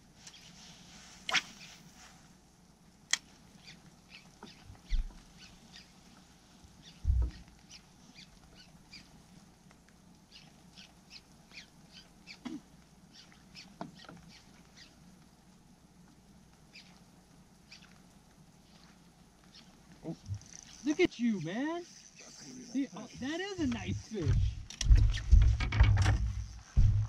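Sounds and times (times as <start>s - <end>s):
small birds chirping: 3.2s - 9.5s, 10.2s - 15.2s, 16.6s - 25.4s
dull low thumps: 23.6s - 27.0s.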